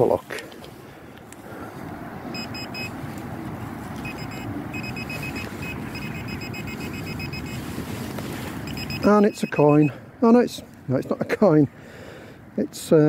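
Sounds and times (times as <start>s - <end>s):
metal detector beeping: 2.3s - 3.0s, 4.0s - 7.7s, 8.6s - 10.0s.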